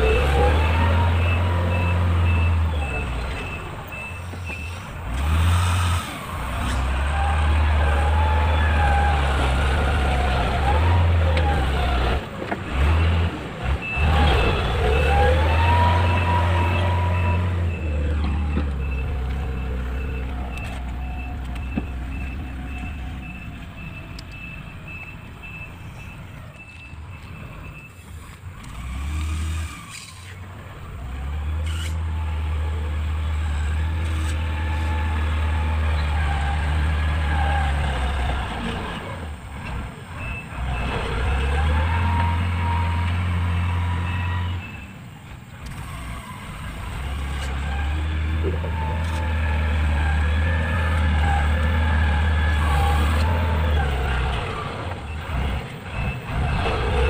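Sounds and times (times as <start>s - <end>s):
reversing alarm beeps: 0.0s - 4.9s, 13.7s - 28.2s, 50.3s - 57.0s
diesel engine under load: 0.0s - 57.0s.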